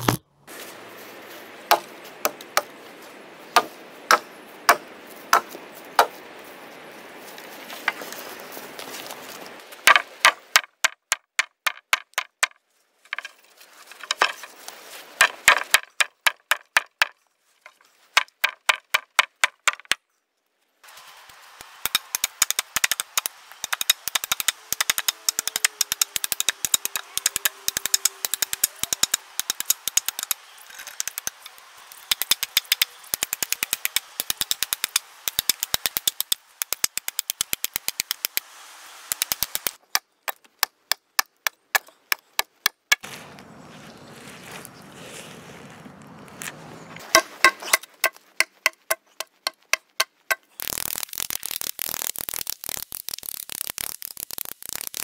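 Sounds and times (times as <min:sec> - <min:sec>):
hatchet chopping wood: 0:00.0 - 0:00.2, 0:01.7 - 0:02.7, 0:03.6 - 0:06.1, 0:21.8 - 0:31.3, 0:32.1 - 0:38.4, 0:39.1 - 0:43.1, 0:47.1 - 0:50.4.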